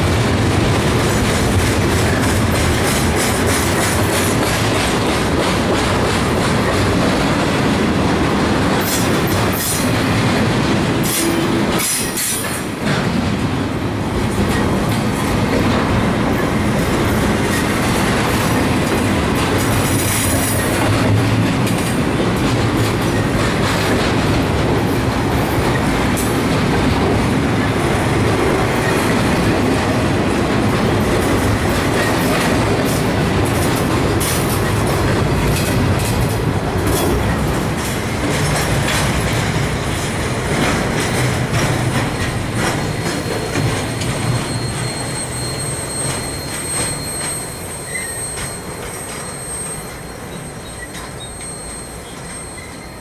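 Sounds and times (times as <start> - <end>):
train wheels rumbling on rail: 0.0 - 53.0
faint high wheel squeal: 42.8 - 53.0.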